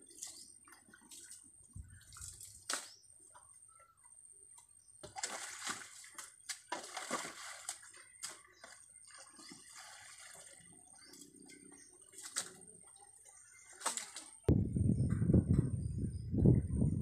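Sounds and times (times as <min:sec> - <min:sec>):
muddy water splashing: 0:00.0 - 0:03.3, 0:05.0 - 0:14.5.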